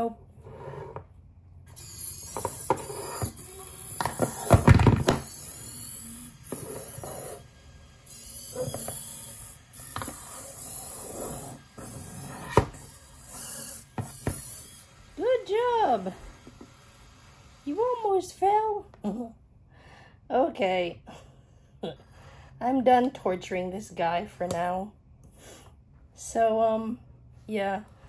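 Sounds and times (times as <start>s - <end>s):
toy robot servo motors whirring: 1.7s - 18.4s.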